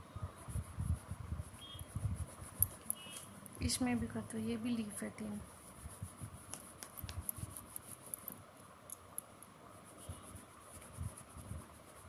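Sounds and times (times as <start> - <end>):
pencil scratching on paper: 0.4 - 3.2, 4.8 - 8.2, 9.8 - 12.0.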